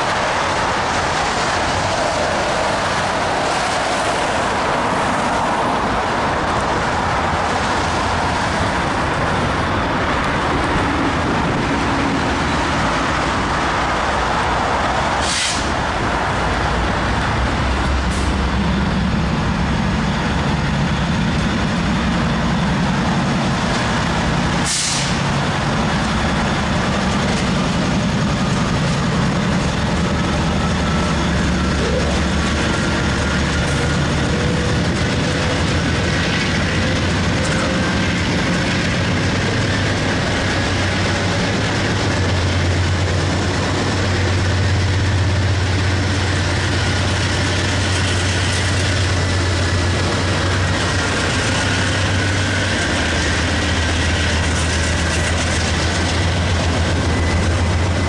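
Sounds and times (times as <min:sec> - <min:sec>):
diesel locomotives rumbling: 0:00.0 - 0:58.0
wet-road traffic hiss: 0:00.0 - 0:58.0
short sharp hisses: 0:15.2 - 0:15.7, 0:24.6 - 0:25.2.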